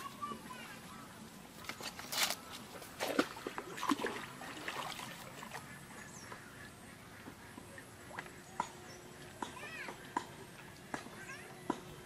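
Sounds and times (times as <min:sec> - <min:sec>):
water splashing and trickling: 0:00.0 - 0:06.0.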